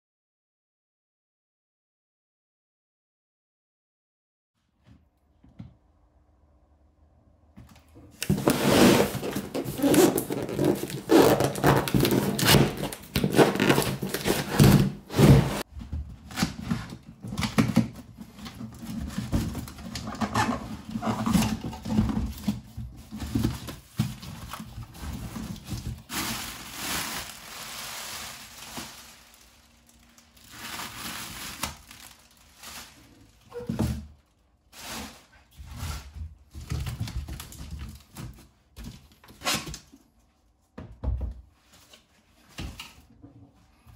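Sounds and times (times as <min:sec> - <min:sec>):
plastic wrapping crinkling and tearing: 0:08.2 - 0:15.6, 0:16.3 - 0:35.5.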